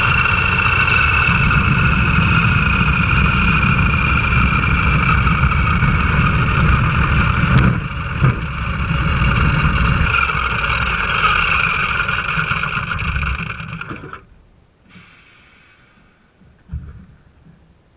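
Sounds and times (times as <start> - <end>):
radial engine and propeller running: 0.0 - 14.3.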